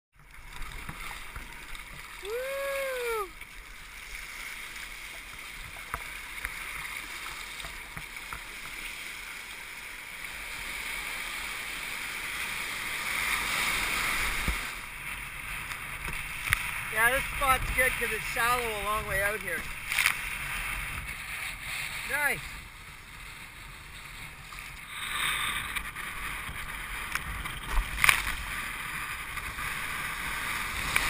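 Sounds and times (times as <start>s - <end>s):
water rushing around kayak: 0.2s - 31.0s
low rumble of wind: 9.2s - 31.0s.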